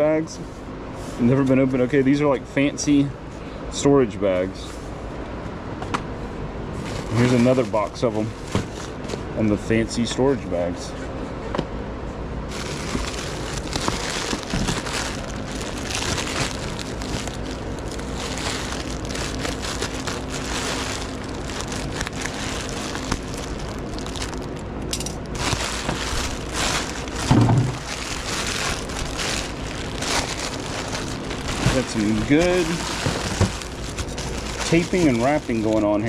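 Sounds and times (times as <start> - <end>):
plastic wrap crackling: 6.8 - 9.2, 12.5 - 36.0.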